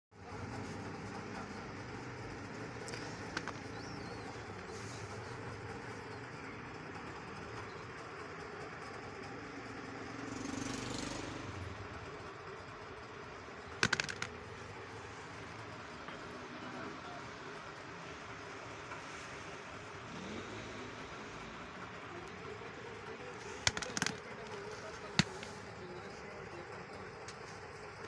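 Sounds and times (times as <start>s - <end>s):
sharp clicks: 23.6s - 24.6s.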